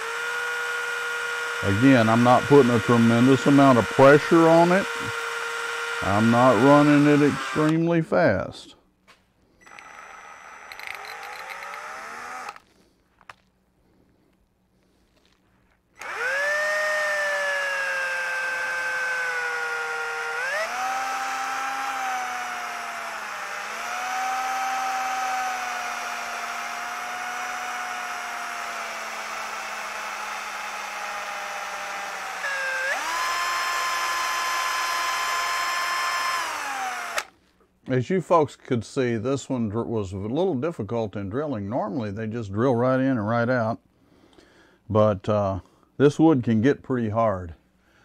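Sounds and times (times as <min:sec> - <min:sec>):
electric drill motor whine: 0:00.0 - 0:07.8, 0:09.6 - 0:12.8, 0:16.0 - 0:37.4.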